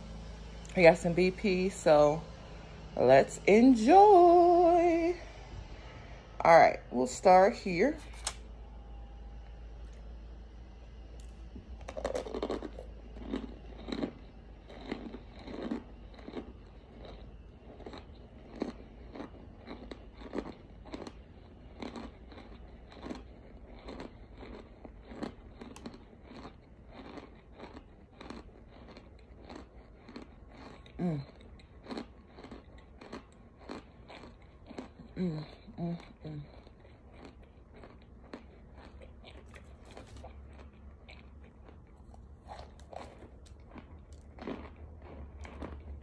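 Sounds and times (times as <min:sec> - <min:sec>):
chunks crunching between teeth: 0:11.2 - 0:46.0.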